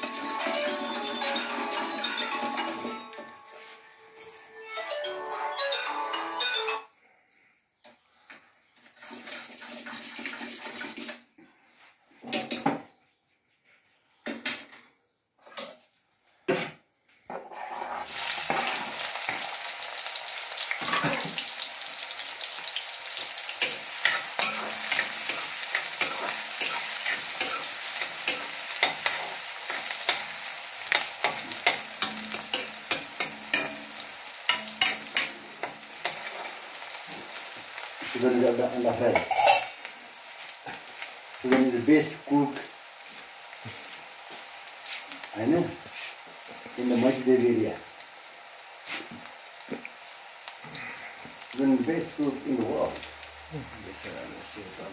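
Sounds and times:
onions sizzling in a pan: 0.0s - 3.8s, 17.6s - 54.9s
metal ladle scraping a pan: 8.8s - 11.3s, 17.4s - 19.5s, 23.2s - 36.7s, 39.1s - 39.8s.

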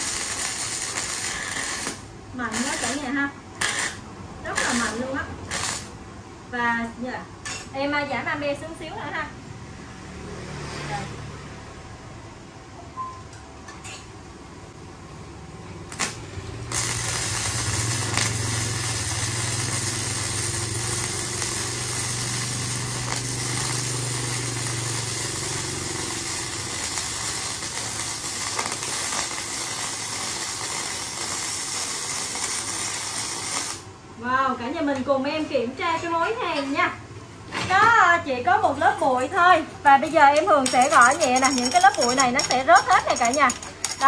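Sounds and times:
welding arc hissing: 0.0s - 6.0s, 15.9s - 33.9s.

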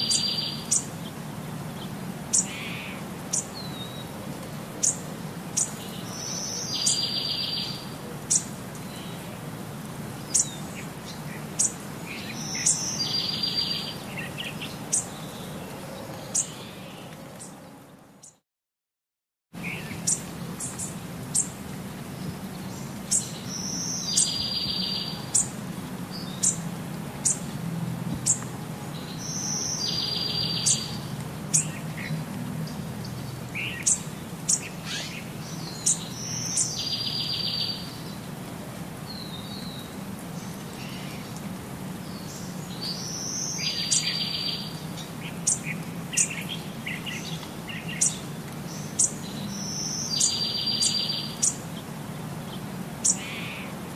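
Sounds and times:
bird singing with trills: 0.0s - 0.9s, 5.6s - 9.2s, 11.6s - 15.4s, 22.7s - 25.5s, 29.0s - 31.8s, 33.1s - 38.0s, 42.1s - 51.6s.

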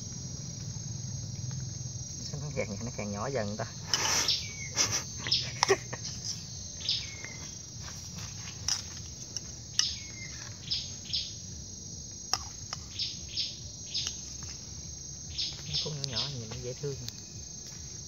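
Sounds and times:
insects trilling: 0.0s - 18.0s
bird chirps: 3.8s - 7.6s, 9.7s - 11.5s, 12.4s - 14.5s, 15.3s - 17.4s.

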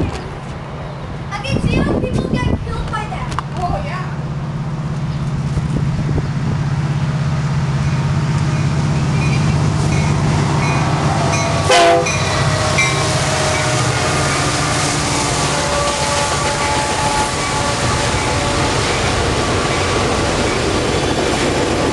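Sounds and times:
moving train rumble and hum: 0.0s - 21.9s
train horn blast: 11.2s - 19.9s.

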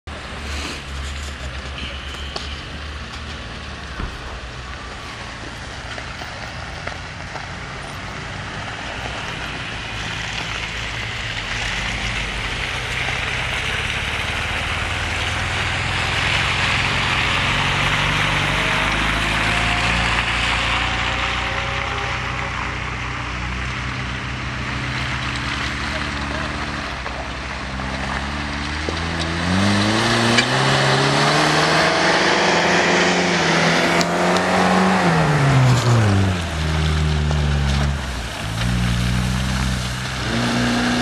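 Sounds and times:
off-road engines running: 0.0s - 41.0s
engine revving: 0.1s - 41.0s
tyres hissing through slush: 0.2s - 1.7s.

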